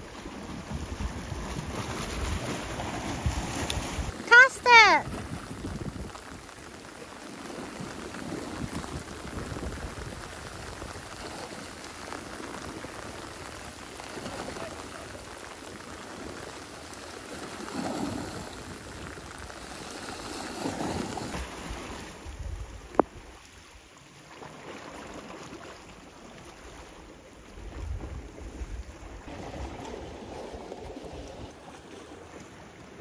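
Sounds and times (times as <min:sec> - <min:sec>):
waves washing on rocky shore: 0:00.0 - 0:23.2
wind gusting on microphone: 0:00.6 - 0:06.5, 0:07.7 - 0:11.6.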